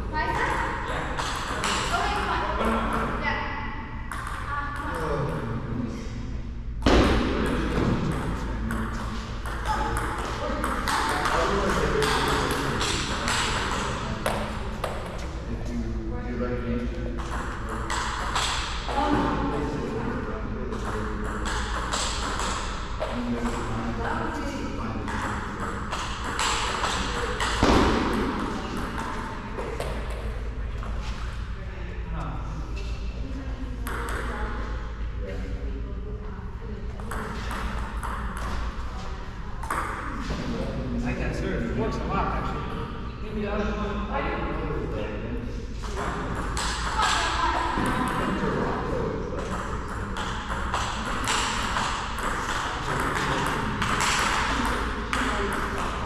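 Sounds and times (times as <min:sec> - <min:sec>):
ping pong ball bouncing on table: 0:00.2 - 0:02.2, 0:04.1 - 0:05.0, 0:06.8 - 0:15.2, 0:17.2 - 0:19.5, 0:20.7 - 0:23.7, 0:25.0 - 0:30.4, 0:33.8 - 0:34.6, 0:37.0 - 0:38.7, 0:39.6 - 0:40.1, 0:45.8 - 0:48.4, 0:49.4 - 0:56.0
ping pong ball hitting paddles: 0:00.2 - 0:02.2, 0:04.1 - 0:05.0, 0:06.8 - 0:15.2, 0:17.2 - 0:19.5, 0:20.7 - 0:24.2, 0:25.0 - 0:31.1, 0:33.8 - 0:34.6, 0:37.0 - 0:38.8, 0:39.6 - 0:40.3, 0:45.8 - 0:48.7, 0:49.4 - 0:56.0.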